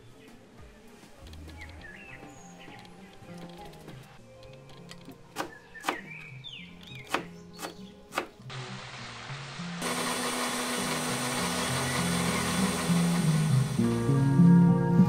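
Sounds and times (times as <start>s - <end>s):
background music: 0.0s - 15.0s
knife chopping herbs on board: 7.0s - 8.4s
mixer grinder whirring: 9.8s - 14.3s.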